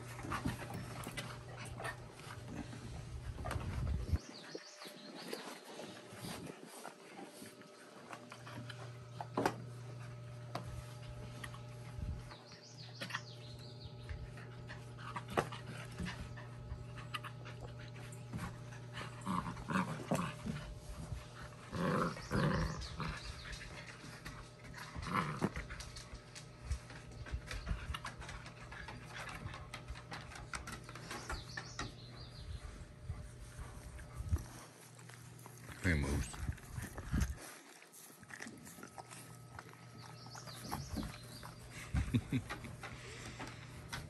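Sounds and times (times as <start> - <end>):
dogs panting: 0.0 - 44.0
dogs play growling: 0.0 - 44.0
steady low hum: 0.0 - 44.0.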